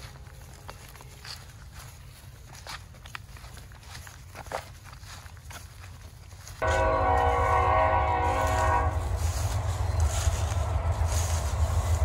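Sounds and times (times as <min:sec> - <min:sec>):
horn blast: 0:06.6 - 0:12.0
low rumble: 0:06.6 - 0:12.0.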